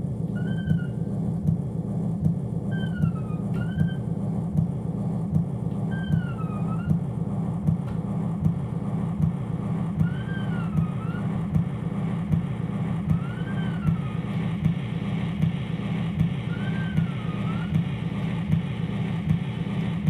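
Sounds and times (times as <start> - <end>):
gritty low rumble: 0.0 - 20.0
thin whistling tone: 0.3 - 1.1, 2.7 - 4.1, 5.8 - 7.0, 10.0 - 11.4, 13.1 - 14.4, 16.4 - 17.8.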